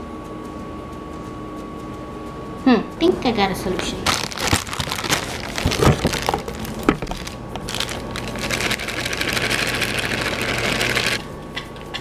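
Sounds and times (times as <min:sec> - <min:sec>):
small motor whirring: 0:07.7 - 0:11.2.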